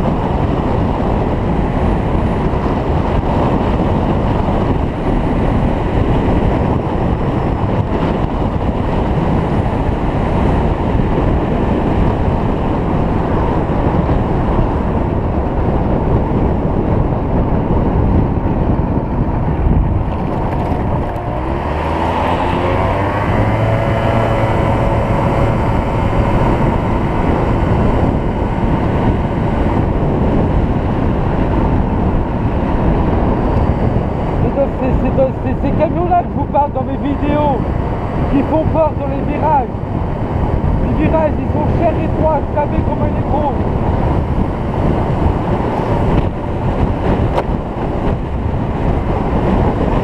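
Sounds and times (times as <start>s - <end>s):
wind buffeting microphone: 0.0s - 50.0s
scooter engine revving: 19.8s - 31.6s.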